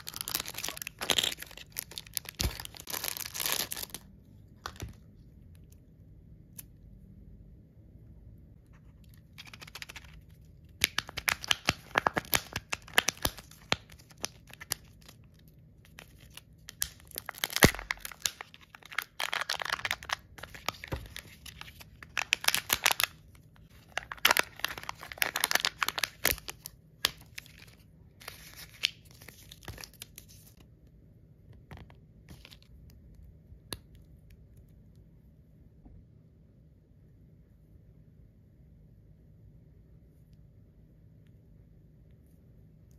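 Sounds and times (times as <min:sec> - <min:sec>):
plastic packaging crinkling and tearing: 0:00.0 - 0:05.0, 0:09.3 - 0:30.6.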